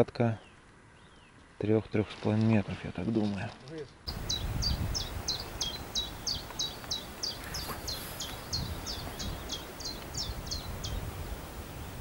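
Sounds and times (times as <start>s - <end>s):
songbird singing: 0.0s - 2.2s, 3.1s - 12.0s
low wind rumble: 4.1s - 12.0s.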